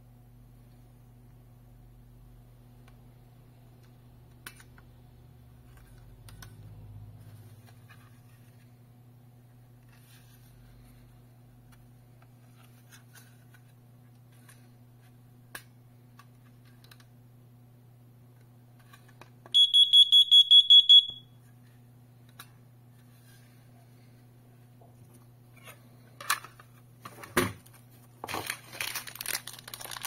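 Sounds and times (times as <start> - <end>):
smoke alarm rapid beeps: 19.6 - 21.3.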